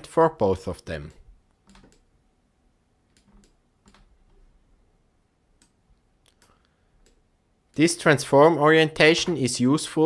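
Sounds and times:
keyboard and mouse clicks: 1.6 - 2.1, 3.1 - 4.4.

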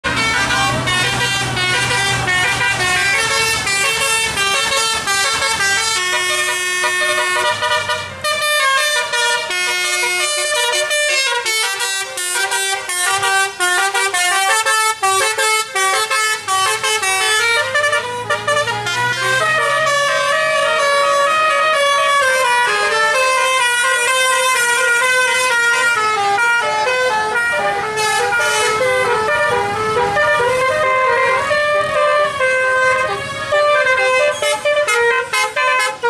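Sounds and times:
musical bus air horn: 0.0 - 36.0.

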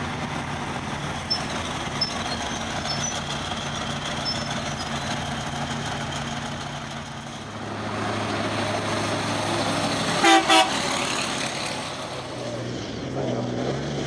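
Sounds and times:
truck diesel engine passing: 0.0 - 14.0
horn toots: 10.2 - 10.9.

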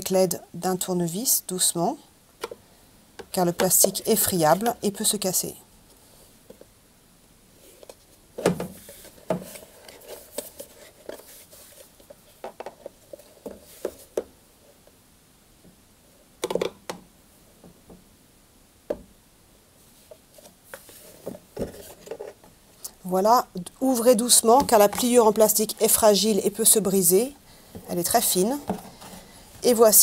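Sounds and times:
plastic clicks and knocks: 16.4 - 17.0.

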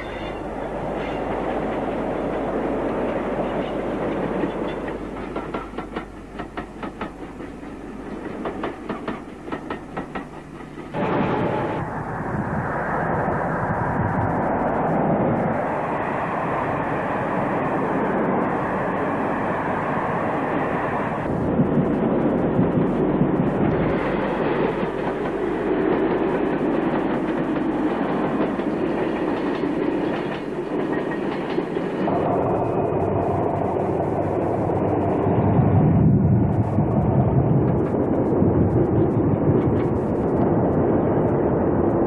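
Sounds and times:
wheel clatter on track: 0.0 - 11.8
train rumbling past: 0.0 - 42.0.

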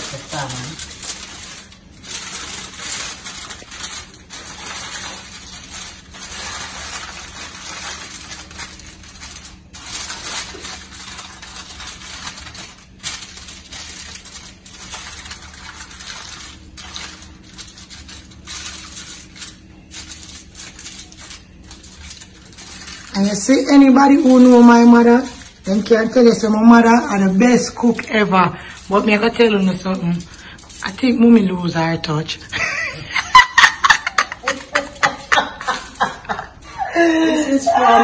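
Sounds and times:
aluminium foil crinkling: 0.0 - 38.0
low steady hum: 0.0 - 38.0.

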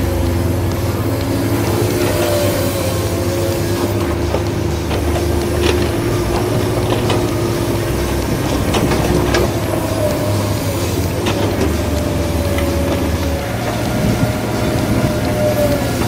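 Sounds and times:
electric motors whining: 0.0 - 16.0
higher motor whine: 0.0 - 16.0.

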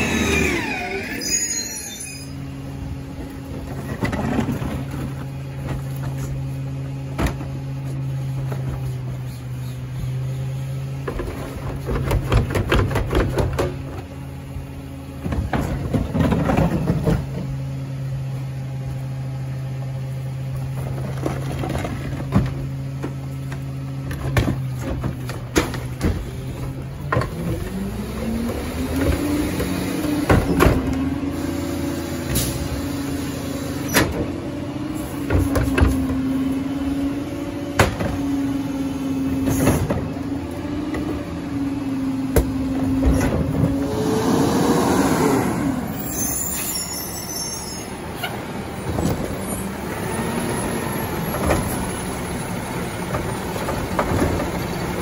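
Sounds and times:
engine revving: 0.0 - 1.2, 36.1 - 46.1
diesel engine humming: 0.0 - 55.0
clatter and banging: 11.0 - 14.1, 15.2 - 17.5.

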